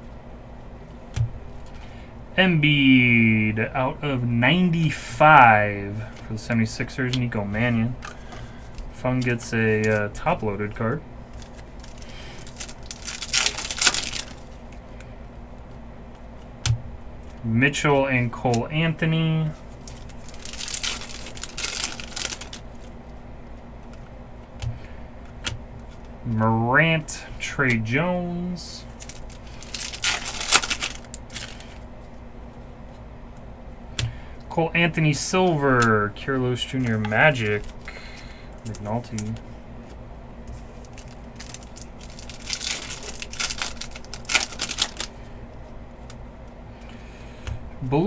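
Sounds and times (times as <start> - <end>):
low steady hum: 0.0 - 48.0
trading cards rustling: 6.0 - 15.1, 18.6 - 23.0, 28.8 - 32.2, 35.2 - 46.2
plastic wrapper crinkling: 11.3 - 15.0, 19.6 - 23.0, 28.8 - 31.8, 36.8 - 39.4, 40.6 - 46.2.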